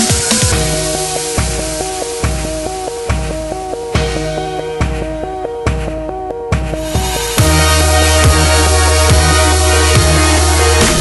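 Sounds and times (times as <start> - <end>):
deep bass line: 0.0 - 11.0
heavy kick drum: 0.0 - 11.0
synth melody: 0.0 - 11.0.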